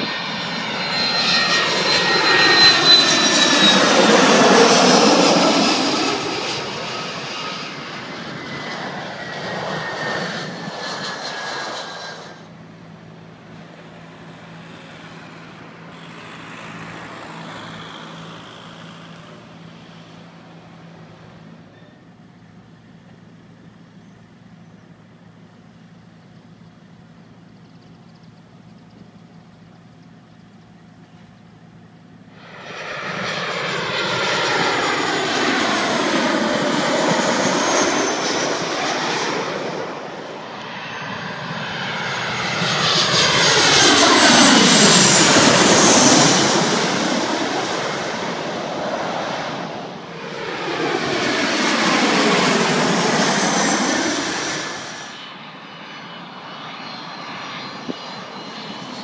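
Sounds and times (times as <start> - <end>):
jet airliners passing overhead: 0.0 - 59.0.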